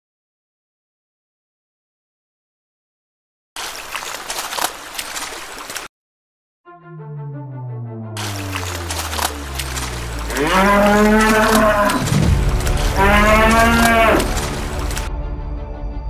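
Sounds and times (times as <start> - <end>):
water splashing: 3.6 - 5.9, 8.2 - 15.1
bull mooing: 9.7 - 15.1.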